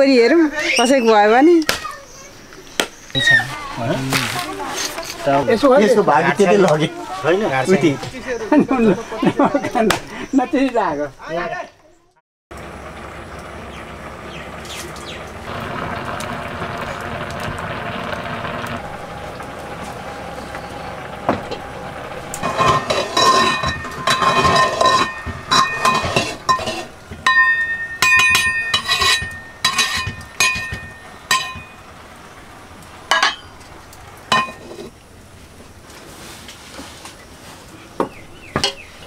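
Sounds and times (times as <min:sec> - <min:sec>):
metal kitchenware clinking: 0:22.4 - 0:31.9, 0:33.1 - 0:33.6, 0:34.3 - 0:34.9.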